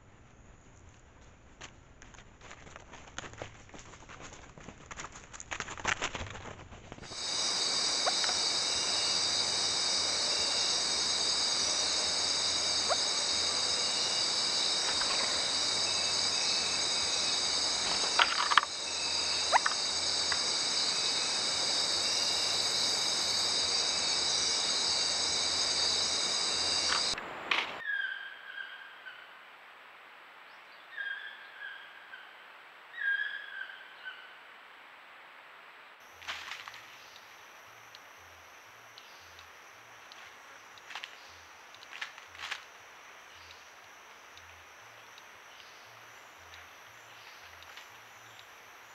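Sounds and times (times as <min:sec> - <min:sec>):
night insects droning: 0:07.0 - 0:48.9.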